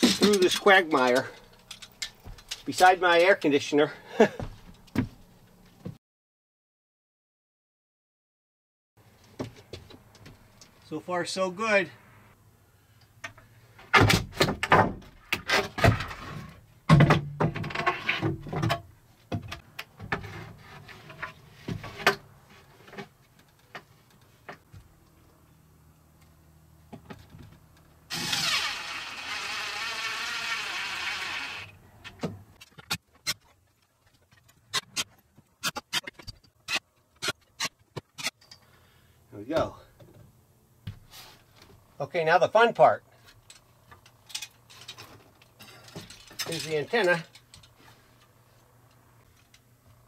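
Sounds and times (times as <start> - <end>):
wooden boards knocking and clattering: 13.9 - 16.2, 16.9 - 20.3
cordless drill running: 28.1 - 31.7.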